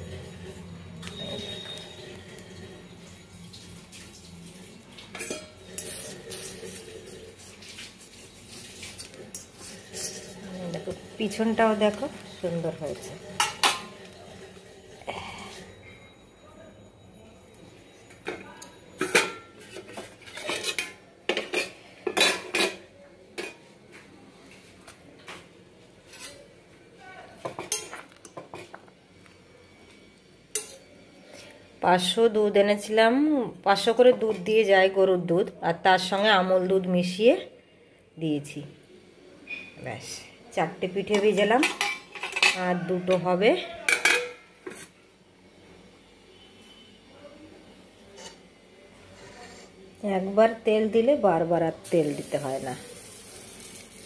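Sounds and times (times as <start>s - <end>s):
metal pots and utensils clinking: 0.0s - 15.7s, 18.1s - 23.7s, 27.4s - 28.8s, 30.5s - 31.5s, 41.0s - 45.0s
metal spatula scraping iron pan: 5.2s - 7.0s, 8.6s - 12.0s, 26.0s - 26.5s.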